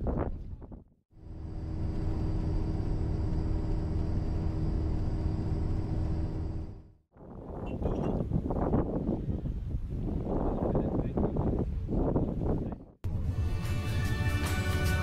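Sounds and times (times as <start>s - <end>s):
vehicle engine and road rumble: 0.1s - 8.5s
faint high whine: 1.2s - 6.9s.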